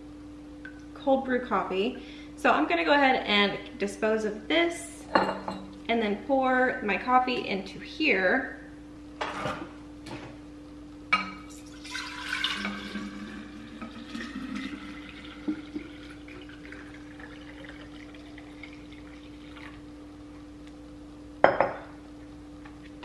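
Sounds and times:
liquid pouring into glass: 0:11.4 - 0:19.8
glass knocking on counter: 0:21.4 - 0:21.9.

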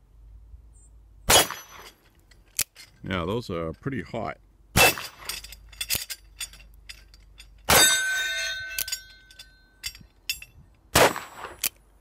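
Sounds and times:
revolver gunshot: 0:01.3 - 0:01.8, 0:10.9 - 0:11.6
steel target clanging and ringing: 0:01.3 - 0:02.0, 0:04.8 - 0:11.6.

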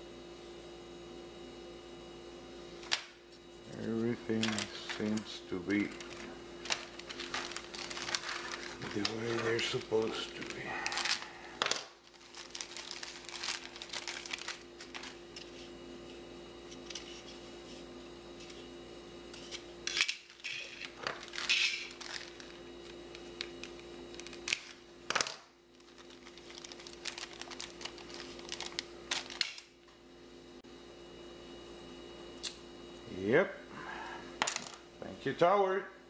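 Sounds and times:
plastic bags crinkling: 0:05.8 - 0:15.2, 0:20.3 - 0:22.6, 0:25.8 - 0:29.6.

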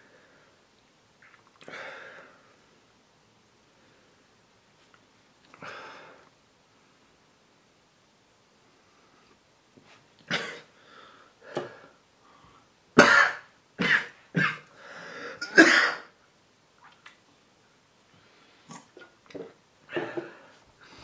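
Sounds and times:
man coughing harshly: 0:10.3 - 0:10.7, 0:13.0 - 0:14.7, 0:15.4 - 0:16.1.

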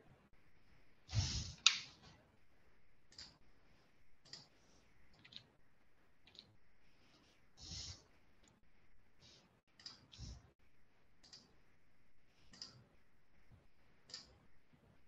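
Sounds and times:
computer mouse clicking: 0:01.4 - 0:02.0, 0:03.1 - 0:03.4, 0:04.2 - 0:05.5, 0:06.2 - 0:06.5, 0:09.7 - 0:10.4, 0:11.2 - 0:11.6, 0:12.4 - 0:12.9, 0:14.1 - 0:14.4.

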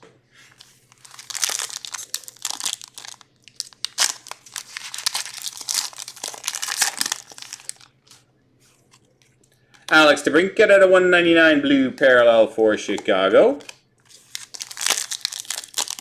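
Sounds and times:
wrapper crinkling: 0:00.5 - 0:08.2, 0:13.6 - 0:16.0.

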